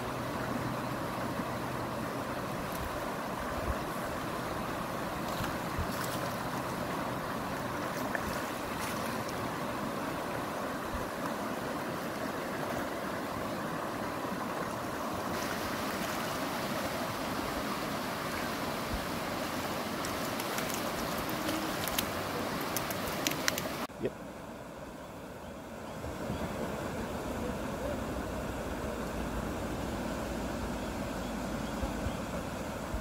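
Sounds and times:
stream rushing over rocks: 0.0s - 23.9s.

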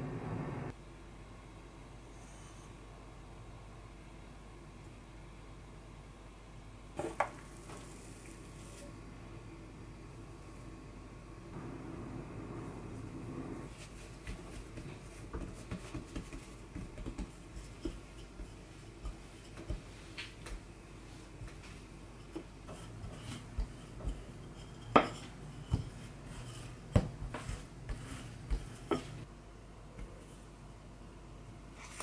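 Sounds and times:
dough rubbing on countertop: 13.7s - 29.3s
rolling pin knocking on surface: 14.8s - 19.9s, 26.9s - 29.2s.

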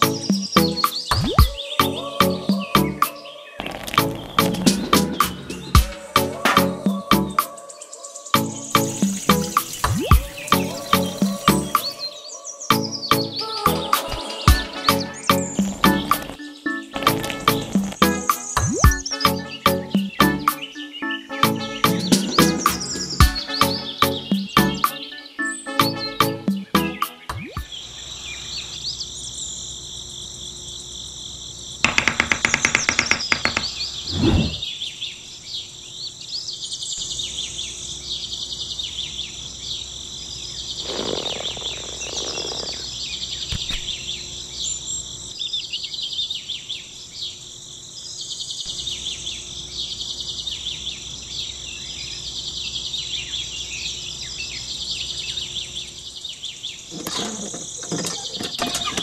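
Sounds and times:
crickets chirping: 0.0s - 21.3s, 27.6s - 59.0s
birds chirping: 0.0s - 30.5s, 31.5s - 59.0s
rapid clicking: 31.9s - 33.8s.

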